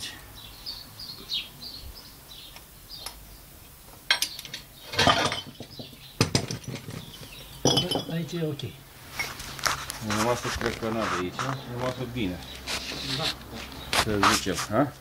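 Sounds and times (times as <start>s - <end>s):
metallic clinks and knocks: 4.1s - 8.2s.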